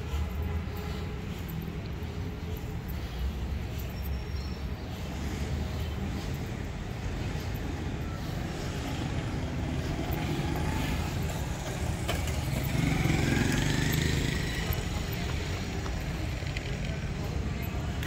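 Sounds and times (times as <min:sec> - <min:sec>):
motorcycle engine passing: 0:09.6 - 0:15.8.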